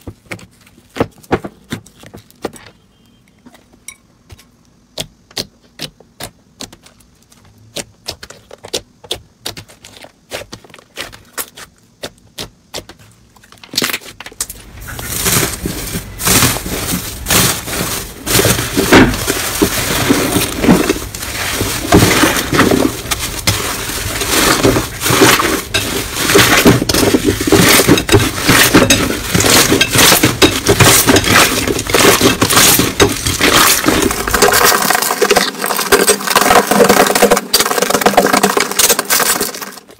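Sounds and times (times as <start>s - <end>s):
slime crackling and squelching: 13.8s - 39.9s.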